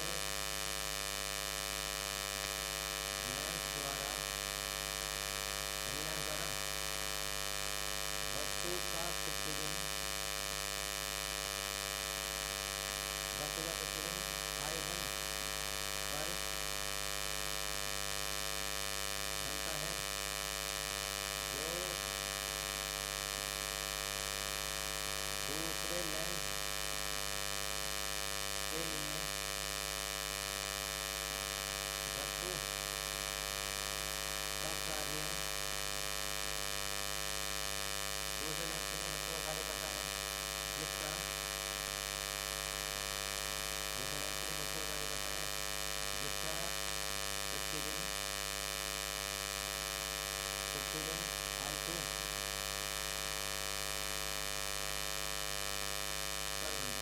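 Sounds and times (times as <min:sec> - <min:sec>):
electrical hum and buzz: 0:00.0 - 0:57.0.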